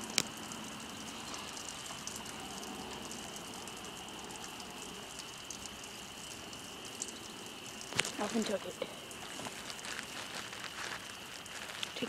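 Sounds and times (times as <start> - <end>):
outdoor background noise: 0.0 - 12.0
faint fine crackling: 7.8 - 12.0.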